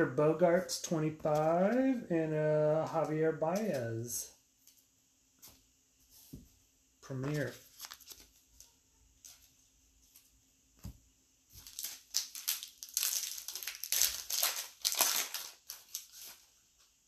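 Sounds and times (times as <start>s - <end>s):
wrapper crinkling and tearing: 7.3s - 8.5s, 11.5s - 16.6s.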